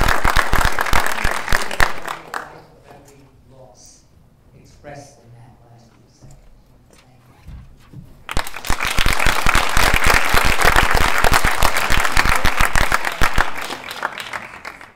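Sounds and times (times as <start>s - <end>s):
audience applauding: 0.0s - 2.7s, 8.3s - 14.9s.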